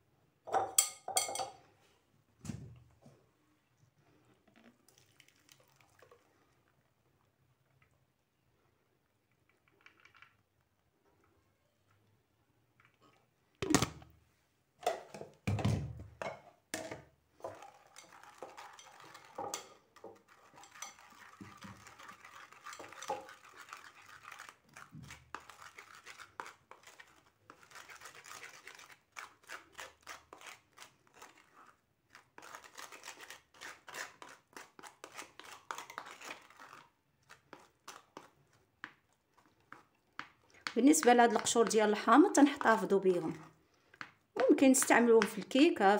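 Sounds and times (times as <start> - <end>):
spatula scraping in mesh sieve: 17.4 - 38.4.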